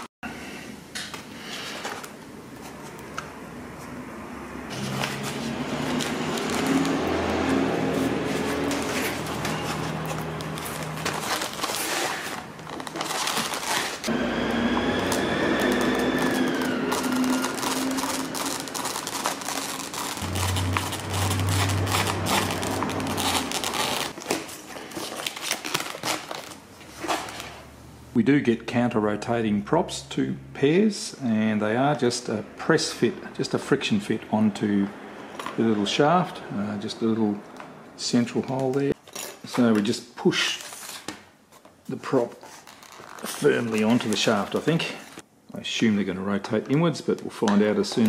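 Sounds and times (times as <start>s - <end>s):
foam and plastic creaking: 14.7s - 26.5s, 42.4s - 45.0s.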